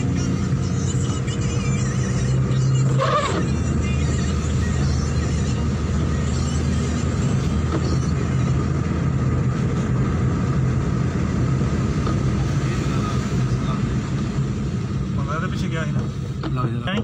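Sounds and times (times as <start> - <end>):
car engine hum: 0.0 - 17.0
tyres hissing on wet road: 10.8 - 16.9.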